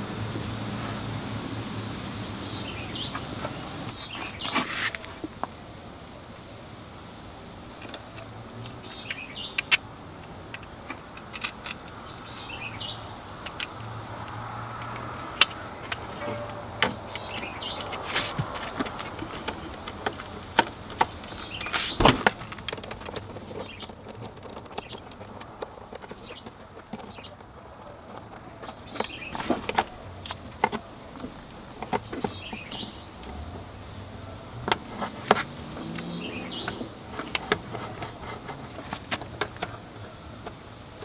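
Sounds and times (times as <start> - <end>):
tools clicking on metal and plastic: 9.5 - 12.3, 13.4 - 32.4.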